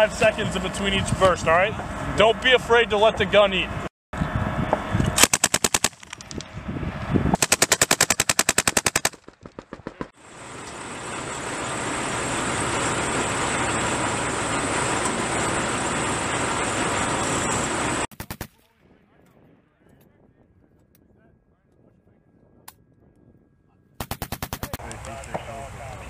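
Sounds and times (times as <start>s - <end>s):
machine gun firing bursts: 5.2s - 6.4s, 7.4s - 10.2s, 18.1s - 18.6s, 24.0s - 24.8s
steady engine noise: 9.9s - 18.1s.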